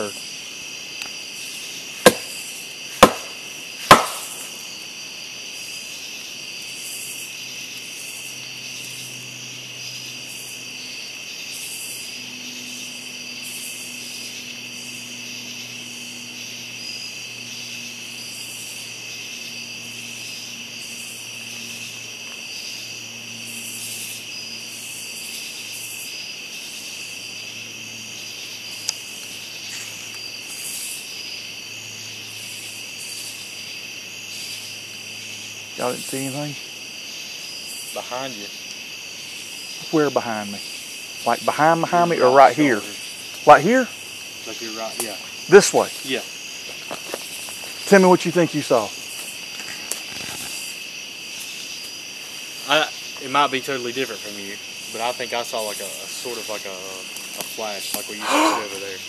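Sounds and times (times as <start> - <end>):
night insects chorus: 0.0 - 59.0
stick knocking on tree trunk: 2.0 - 2.4, 3.0 - 4.5.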